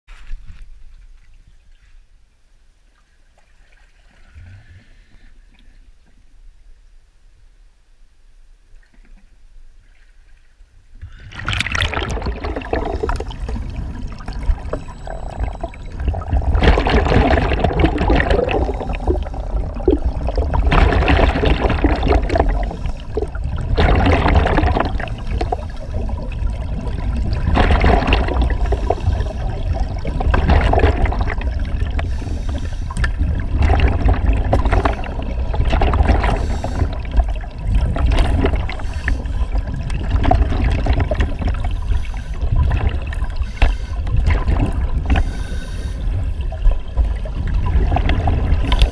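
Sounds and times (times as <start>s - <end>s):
low underwater rumble: 8.5s - 48.9s
regulator exhaled bubbles: 11.0s - 48.9s.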